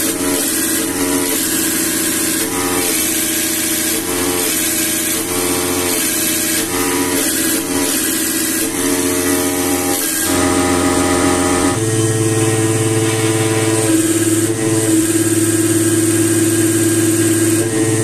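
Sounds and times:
test bench mechanical hum: 0:00.0 - 0:18.0.

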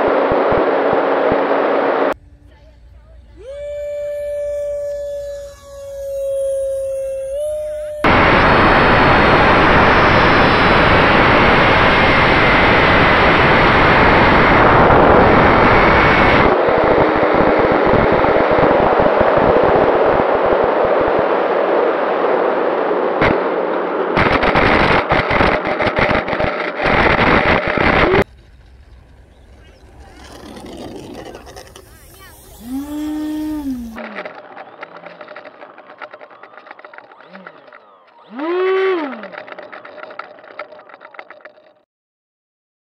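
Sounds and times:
model jet motor whine: 0:03.4 - 0:19.0, 0:28.7 - 0:41.7.

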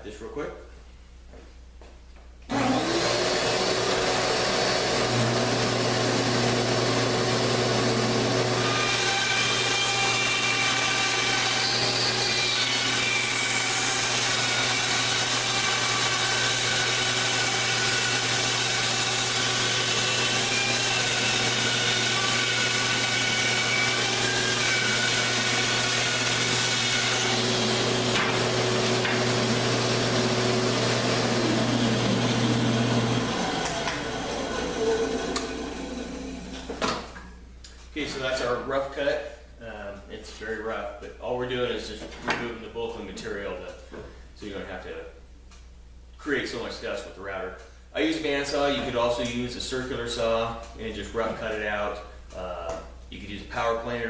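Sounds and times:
bandsaw cutting wood: 0:02.5 - 0:37.0.

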